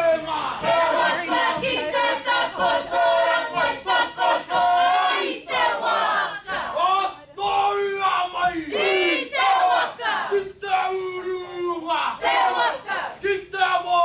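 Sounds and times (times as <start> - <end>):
group chanting in unison: 0.0 - 7.2, 8.3 - 10.6, 11.9 - 13.5.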